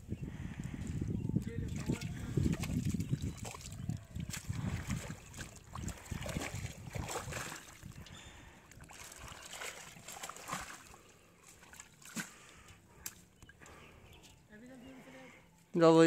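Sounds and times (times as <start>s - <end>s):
water splashing and dripping: 1.4s - 13.8s
wet slaps and ticks: 1.9s - 4.6s, 11.5s - 13.8s.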